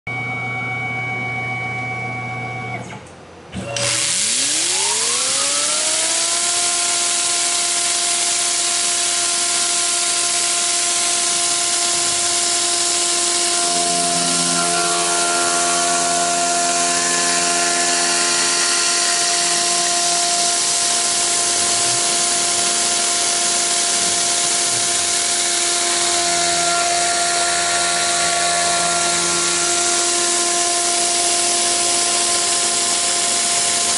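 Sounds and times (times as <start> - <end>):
mill spindle whine: 0.1 - 33.9
cutter hiss on metal: 3.8 - 33.9
low hum: 11.5 - 33.3.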